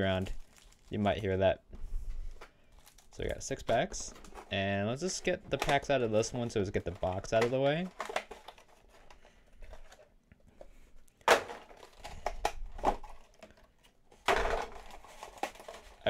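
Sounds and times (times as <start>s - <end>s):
foil packs crinkling: 0.0s - 1.4s, 2.2s - 10.1s, 11.5s - 13.8s, 14.5s - 16.0s
plastic tray crackling: 0.1s - 1.4s, 2.3s - 16.0s.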